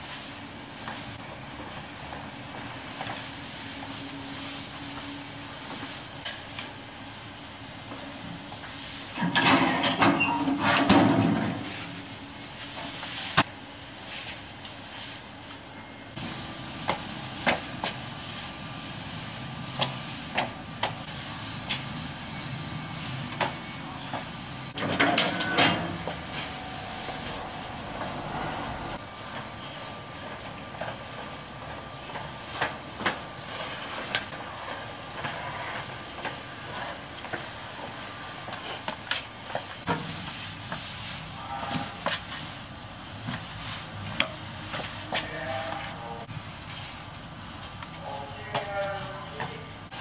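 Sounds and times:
wet mop swishing on tiles: 0:25.9 - 0:31.5, 0:32.1 - 0:47.9.

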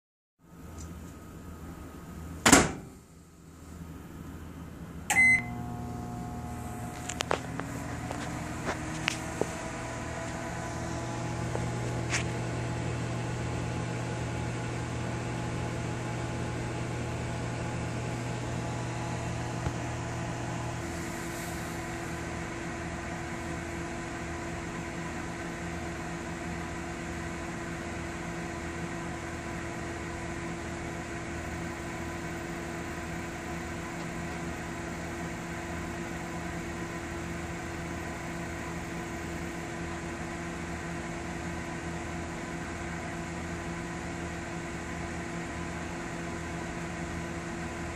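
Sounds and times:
microwave oven humming: 0:00.4 - 0:47.9
microwave door banging shut: 0:02.4 - 0:02.9
keypad beep: 0:05.1 - 0:05.5.

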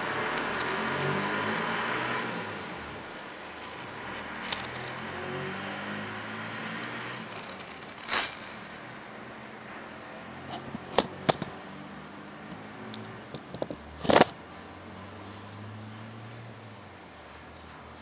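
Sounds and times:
scraping rustle: 0:02.3 - 0:05.5, 0:06.6 - 0:08.9.

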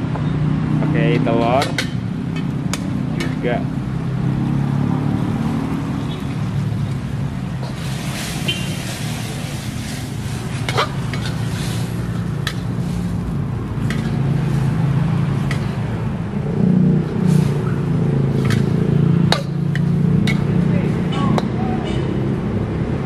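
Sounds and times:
food sizzling: 0:03.8 - 0:15.8
metal spatula scraping a wok: 0:07.5 - 0:14.8, 0:17.2 - 0:17.7, 0:18.3 - 0:20.5.

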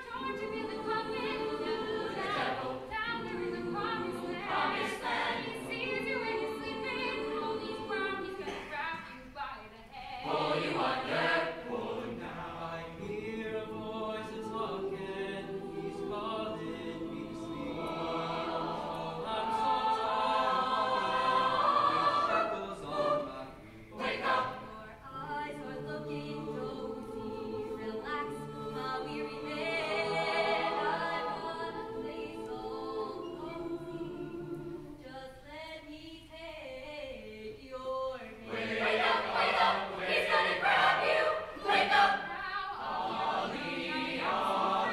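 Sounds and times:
mixed choir singing a cappella: 0:00.0 - 0:44.9.

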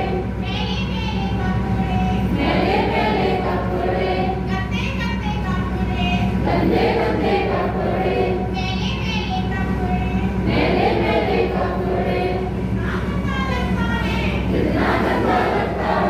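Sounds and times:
low hum: 0:00.0 - 0:16.0
group singing in unison: 0:02.3 - 0:04.4, 0:06.4 - 0:08.5, 0:10.4 - 0:12.6, 0:14.5 - 0:16.0.

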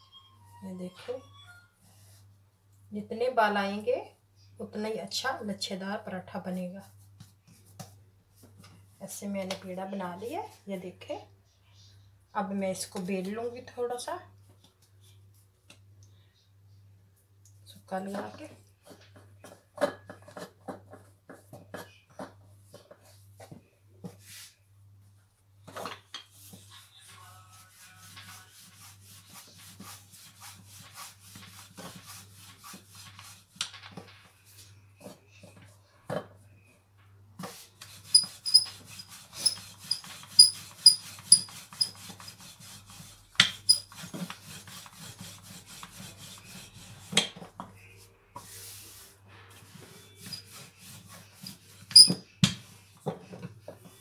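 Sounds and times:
hands patting and rubbing dough: 0:37.4 - 0:49.0
sharp taps with high squeaks: 0:38.1 - 0:38.7.

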